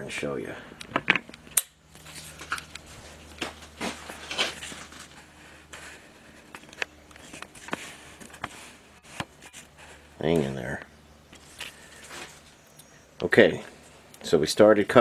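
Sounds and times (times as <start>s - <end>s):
low steady hum: 0.0s - 15.0s
camera handling clicks and rustles: 0.8s - 3.5s, 6.4s - 9.7s.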